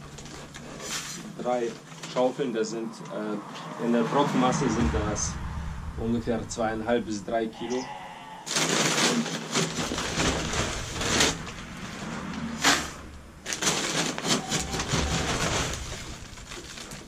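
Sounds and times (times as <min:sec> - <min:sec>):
paper sack rustling: 0:00.0 - 0:02.4, 0:08.5 - 0:17.0
dry pulp pouring: 0:08.6 - 0:17.0.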